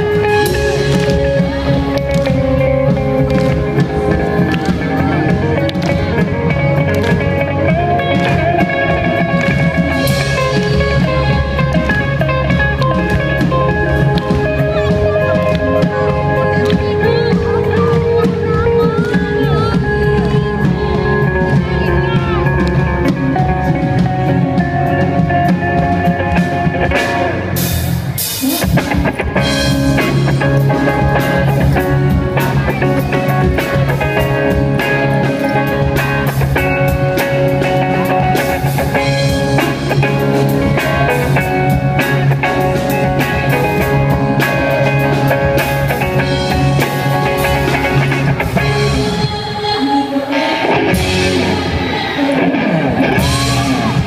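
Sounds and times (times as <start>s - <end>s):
drum kit: 0.0s - 49.7s, 50.3s - 54.0s
acoustic and electric guitars: 0.0s - 54.0s
woman singing: 48.9s - 52.6s.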